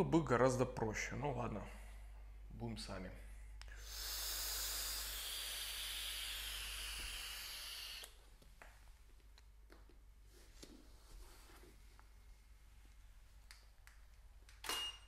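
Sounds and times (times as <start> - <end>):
smoke hissing: 3.7 - 8.2.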